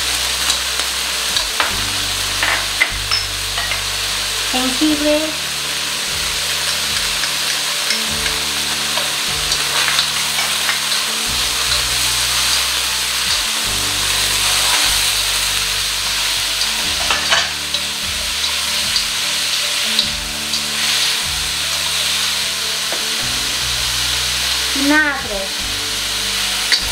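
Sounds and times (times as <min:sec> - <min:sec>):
food sizzling in a wok: 0:00.0 - 0:26.9
chopsticks clicking on metal: 0:06.7 - 0:08.4.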